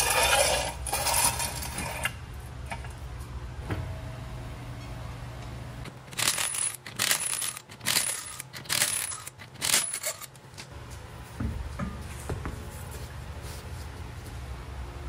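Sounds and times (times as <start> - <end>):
impact wrench bursts: 6.0 - 10.3
wrench high whine: 6.1 - 10.4.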